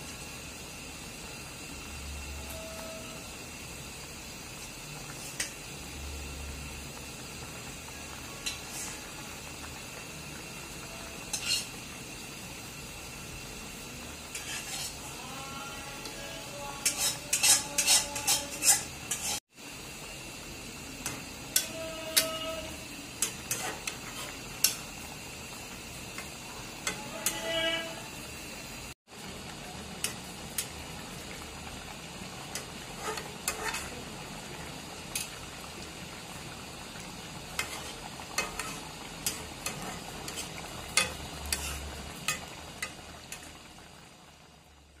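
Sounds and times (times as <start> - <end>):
curry bubbling in a pan: 0.0 - 16.1, 16.8 - 45.0
spatula stirring gravy: 14.3 - 15.1, 16.8 - 19.4, 37.6 - 43.0.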